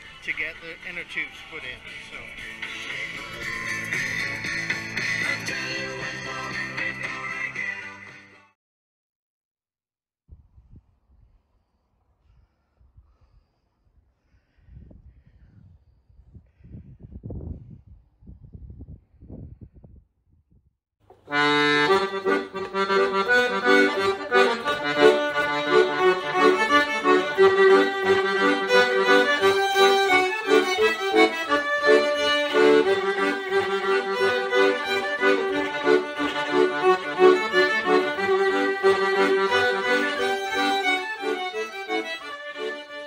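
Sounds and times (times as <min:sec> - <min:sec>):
instrumental music: 0:01.8 - 0:08.4, 0:21.1 - 0:43.0.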